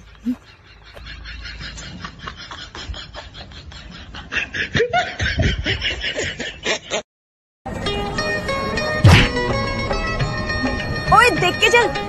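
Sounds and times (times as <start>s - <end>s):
rapid chuckling laughter: 0.0s - 7.1s.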